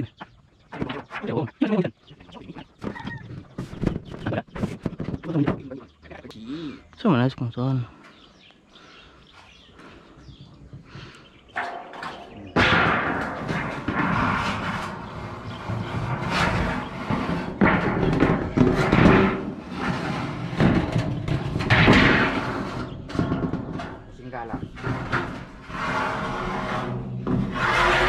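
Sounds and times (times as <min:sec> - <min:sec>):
loud bangs and clattering: 0:11.5 - 0:28.0.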